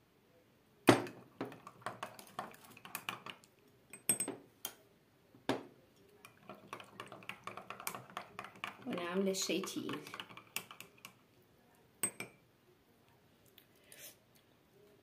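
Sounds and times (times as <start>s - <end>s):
metal spoon clinking on glass: 3.9s - 4.4s, 12.0s - 12.4s.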